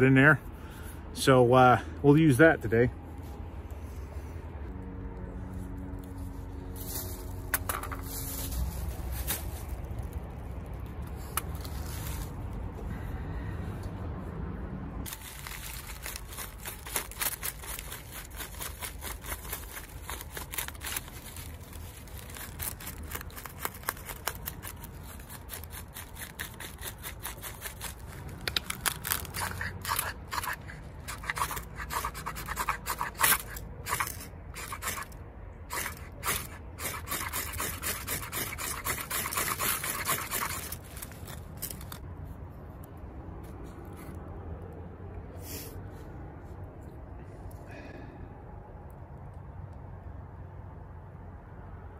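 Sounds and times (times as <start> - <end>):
knife scraping ferrocerium rod: 22.2 - 42.0.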